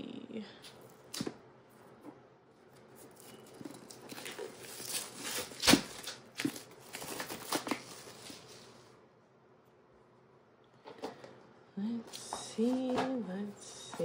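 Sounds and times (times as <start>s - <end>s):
paper and card rustling: 2.7s - 8.8s.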